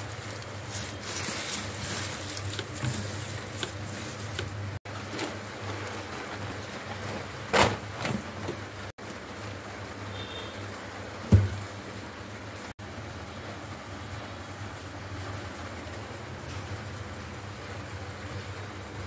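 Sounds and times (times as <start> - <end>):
basket and plastic bags rustling: 0.0 - 8.9.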